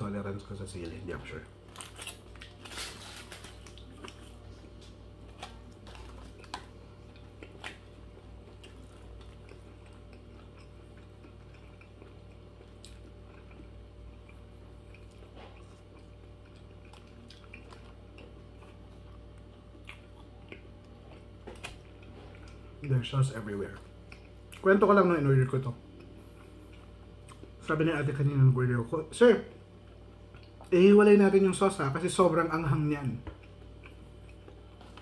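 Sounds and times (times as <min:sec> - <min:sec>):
steady low hum: 0:00.0 - 0:35.0
person chewing: 0:01.6 - 0:24.7, 0:25.8 - 0:27.6, 0:29.8 - 0:30.7, 0:33.3 - 0:35.0.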